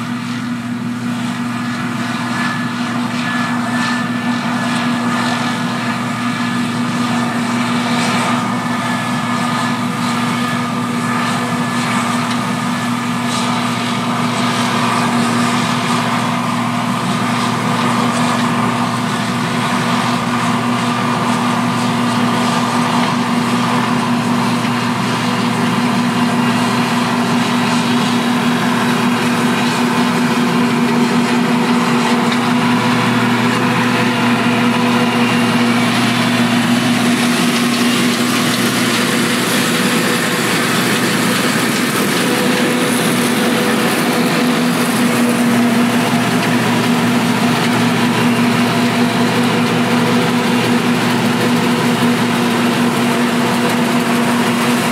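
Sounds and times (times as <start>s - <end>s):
combine harvester humming: 0.0s - 54.9s.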